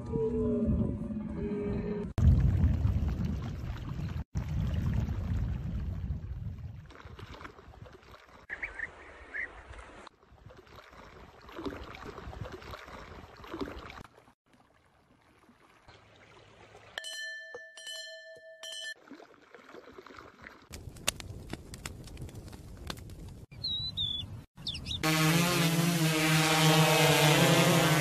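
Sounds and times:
ringing tone: 17.0s - 19.0s.

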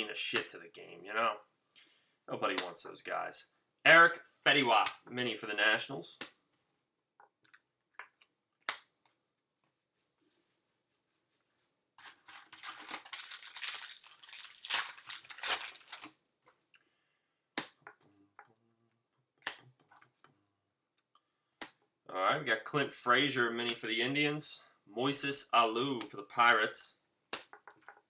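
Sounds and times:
cards clicking and tapping: 7.2s - 9.2s, 17.6s - 18.0s, 27.3s - 28.0s
wrapper crinkling and tearing: 12.0s - 16.2s.

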